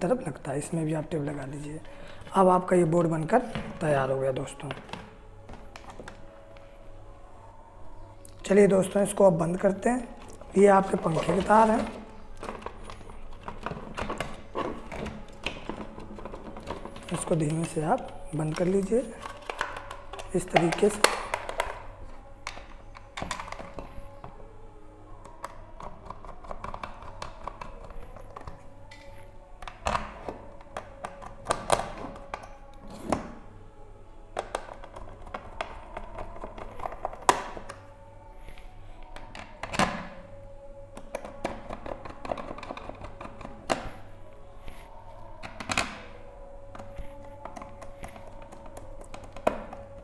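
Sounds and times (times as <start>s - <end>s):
plastic and metal knocks and clicks: 10.9s - 21.8s.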